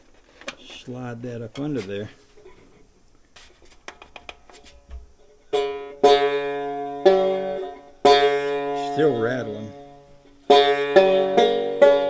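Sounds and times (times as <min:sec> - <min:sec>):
plucked banjo notes: 0:05.5 - 0:12.0
clicks and taps on strings: 0:10.5 - 0:12.0.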